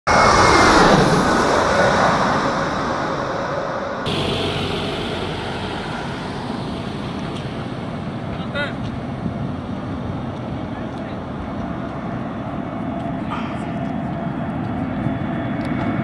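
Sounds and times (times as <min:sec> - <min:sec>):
loud rushing noise with falling tone: 0:00.1 - 0:10.4
distant jet airliner rumble: 0:00.1 - 0:16.0.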